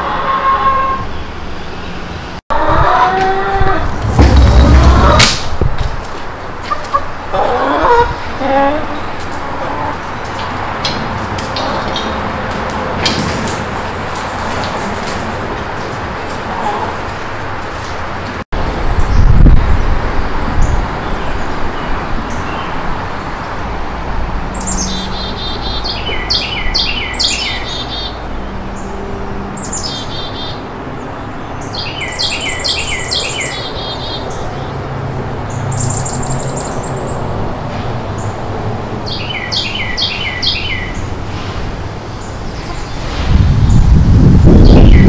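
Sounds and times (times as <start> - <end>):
songbird singing: 24.5 - 34.8, 35.4 - 37.4, 39.0 - 41.2, 44.5 - 45.0.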